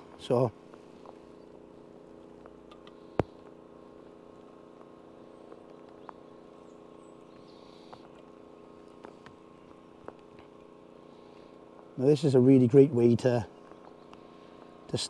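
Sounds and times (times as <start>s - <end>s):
machine hum: 0.0s - 15.0s
faint ticks: 13.6s - 14.8s.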